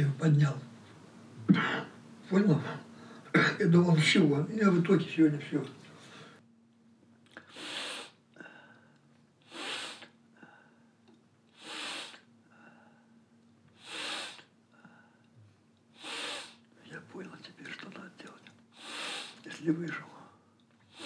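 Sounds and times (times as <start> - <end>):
man breathing heavily: 7.4 - 11.0, 11.6 - 13.2, 13.8 - 15.4, 18.7 - 19.5.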